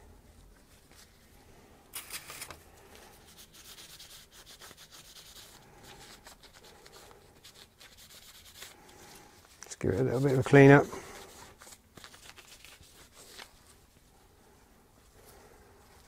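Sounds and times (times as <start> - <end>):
sandpaper rubbing on metal: 3.2 - 8.8.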